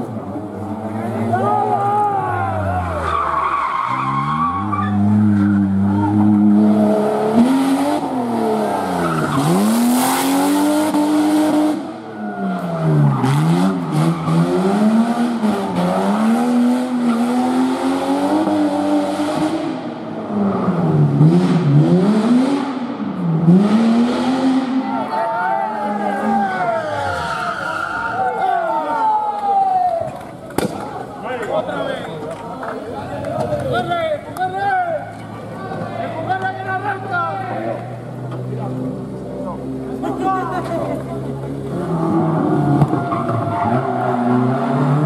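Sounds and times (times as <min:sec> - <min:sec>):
car engine revving: 0:02.6 - 0:12.0, 0:12.6 - 0:25.0, 0:35.2 - 0:45.0.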